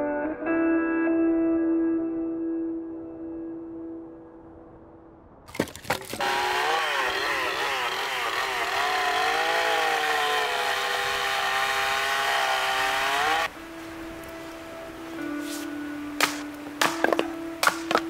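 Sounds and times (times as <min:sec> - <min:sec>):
chainsaw cutting logs: 0:06.0 - 0:13.5, 0:16.2 - 0:18.0
sharp knocks: 0:16.2 - 0:18.0.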